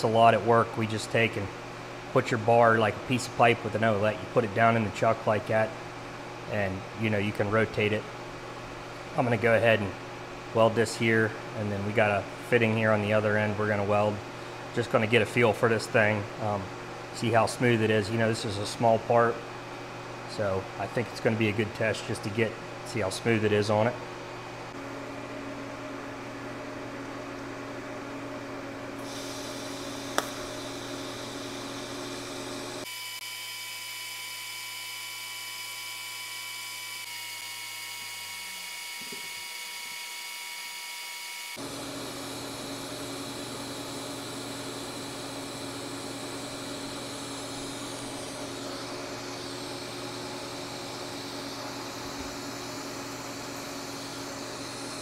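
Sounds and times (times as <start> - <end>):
welding arc humming: 24.8 - 55.0.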